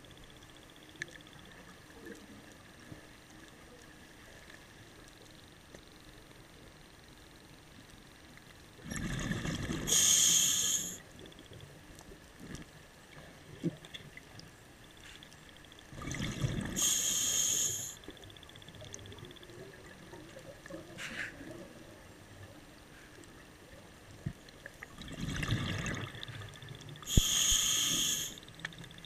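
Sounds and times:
diver breathing through regulator: 9.9 - 11.0, 16.8 - 18.0, 27.1 - 28.4.

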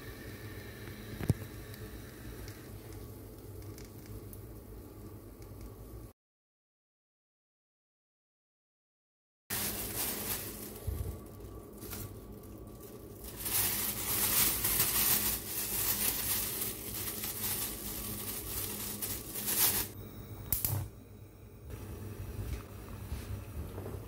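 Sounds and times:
plastic bag crinkling: 9.5 - 20.0.

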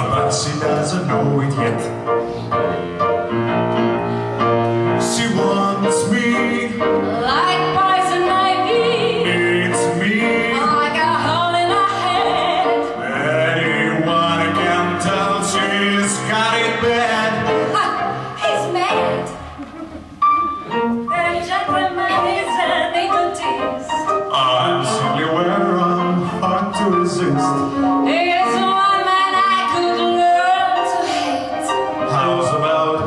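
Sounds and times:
piano: 0.0 - 33.0
man and woman singing duet: 5.0 - 18.8, 21.1 - 33.0.

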